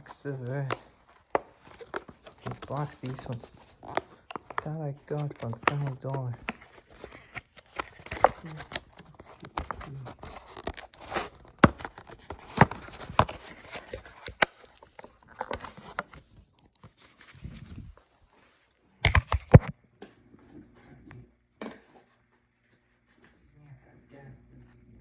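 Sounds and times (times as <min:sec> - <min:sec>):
plastic packaging crinkling: 0:00.0 - 0:18.6.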